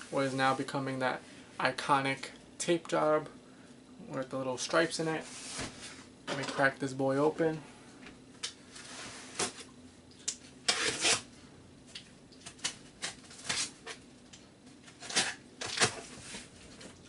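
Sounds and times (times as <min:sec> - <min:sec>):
cardboard rustling scrape: 0:05.2 - 0:06.0, 0:08.7 - 0:09.6.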